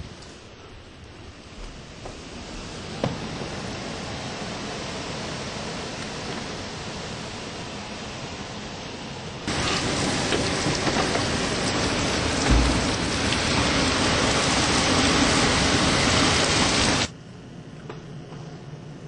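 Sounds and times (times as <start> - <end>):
driving rain: 0.0 - 17.1
hurricane wind: 0.0 - 17.2
low thump: 12.4 - 13.0.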